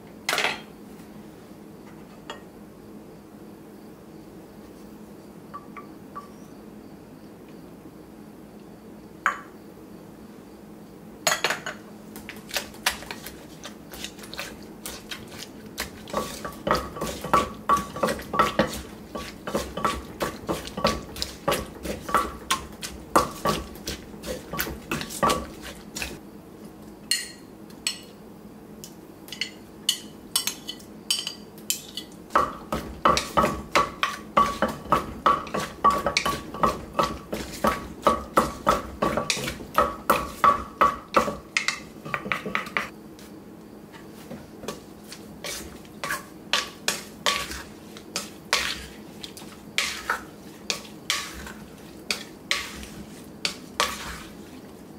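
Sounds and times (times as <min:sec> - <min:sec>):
wooden pestle pounding in mortar: 0:13.9 - 0:26.2, 0:32.3 - 0:42.9
spoon clinking against mortar: 0:29.3 - 0:32.2.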